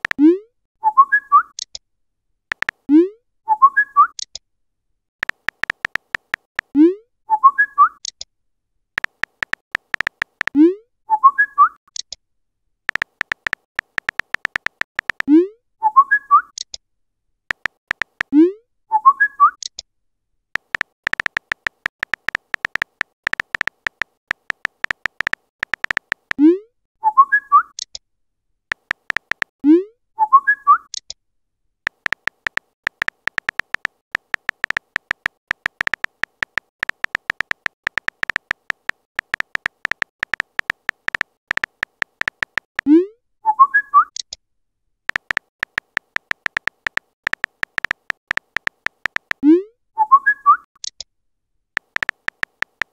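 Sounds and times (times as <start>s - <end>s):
phone keyboard typing clicks: 0.0s - 0.3s, 2.5s - 2.9s, 5.2s - 6.7s, 9.0s - 10.6s, 12.9s - 15.3s, 17.5s - 18.4s, 20.6s - 26.4s, 28.7s - 29.6s, 31.9s - 42.9s, 45.1s - 49.4s, 51.8s - 52.9s
chat notification pop and chirp: 0.0s - 1.7s, 2.5s - 4.3s, 5.2s - 8.2s, 9.0s - 11.8s, 12.9s - 16.6s, 17.5s - 19.7s, 20.6s - 27.8s, 28.7s - 31.0s, 31.9s - 44.3s, 45.1s - 51.0s.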